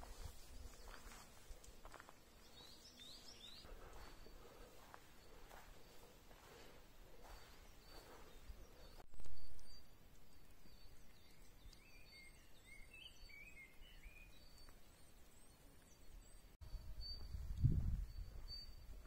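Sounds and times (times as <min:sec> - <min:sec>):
footsteps rustling on a trail: 0:00.0 - 0:09.1
small birds singing: 0:00.0 - 0:19.0.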